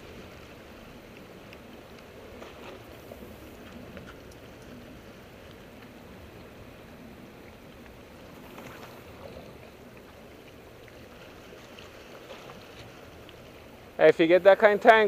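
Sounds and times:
ocean waves lapping: 0.0s - 15.0s
faint ticks: 1.1s - 6.5s, 7.4s - 13.6s.

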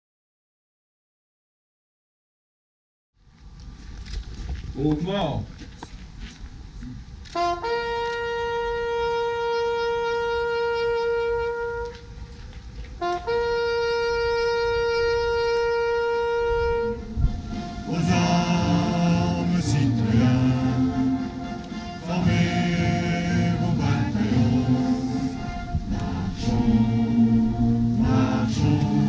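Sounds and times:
bugle call: 7.3s - 29.0s
many voices singing: 17.4s - 29.0s.

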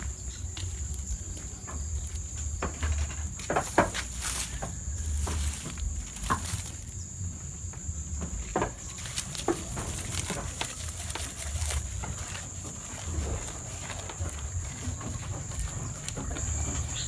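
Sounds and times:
goats chewing: 0.0s - 17.0s
leaf rustle: 0.0s - 17.0s
stems and leaves snapping: 1.7s - 7.0s, 8.4s - 16.4s.

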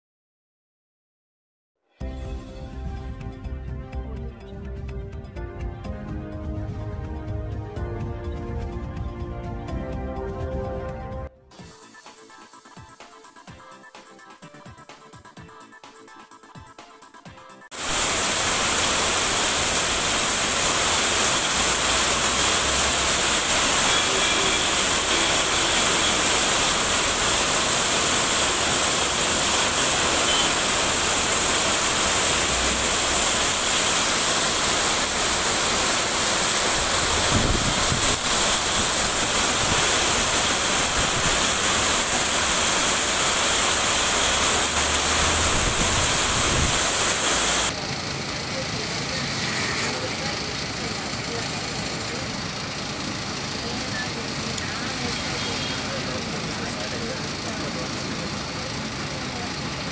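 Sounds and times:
heavy rain hissing: 17.7s - 47.7s, 49.1s - 59.9s.

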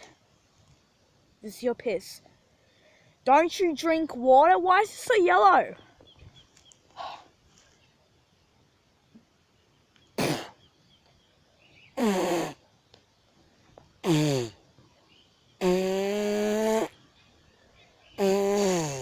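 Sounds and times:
boy retching: 10.2s - 10.6s, 12.0s - 12.6s, 14.0s - 14.6s, 15.6s - 17.0s, 18.2s - 19.0s
spitting or coughing burst: 10.2s - 10.6s, 12.0s - 12.6s, 14.0s - 14.6s, 15.6s - 17.0s, 18.2s - 19.0s.

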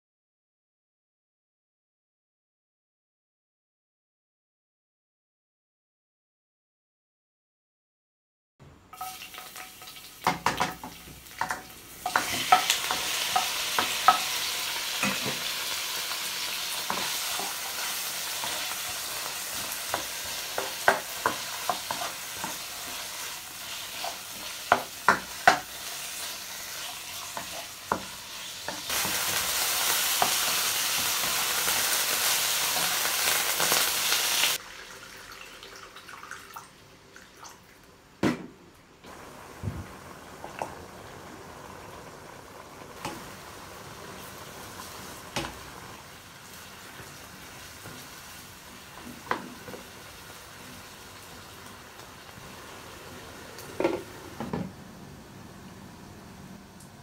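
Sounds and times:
chicken sizzling in hot oil: 9.0s - 36.4s, 39.1s - 54.6s.

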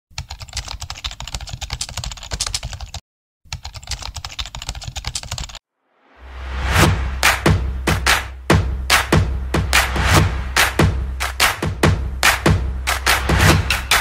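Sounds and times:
rising whoosh: 5.8s - 7.8s.

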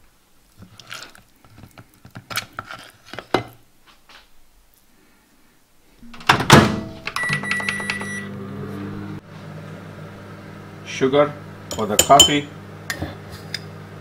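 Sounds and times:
microwave humming: 6.0s - 14.0s
microwave door shutting: 6.2s - 8.2s
microwave beep: 6.9s - 8.5s.

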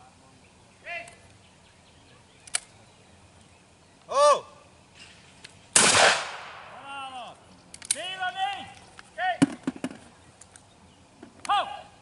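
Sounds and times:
person shouting: 4.1s - 4.6s, 11.5s - 12.0s
shotgun shot with echo: 5.8s - 6.8s.

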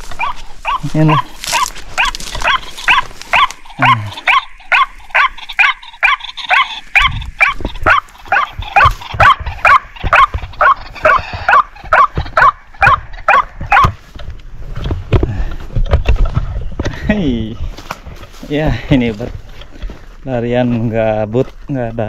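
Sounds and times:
bird croaking call: 0.0s - 14.2s.

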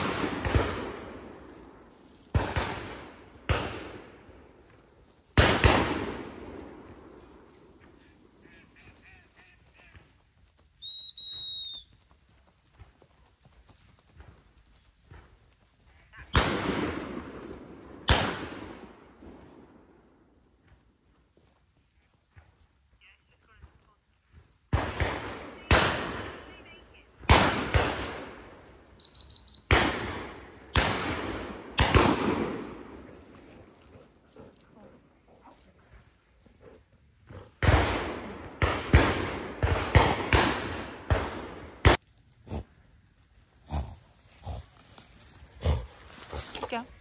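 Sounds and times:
shotgun shots with echo: 0.0s - 4.3s, 5.4s - 7.0s, 16.3s - 19.4s, 24.7s - 26.6s, 27.2s - 28.6s, 29.7s - 33.1s, 37.6s - 42.0s
high-pitched whistle blasts: 10.8s - 11.9s, 29.0s - 29.7s.

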